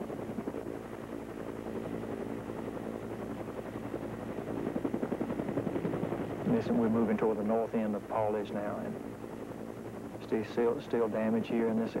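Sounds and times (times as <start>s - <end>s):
helicopter rotor chopping: 0.0s - 12.0s.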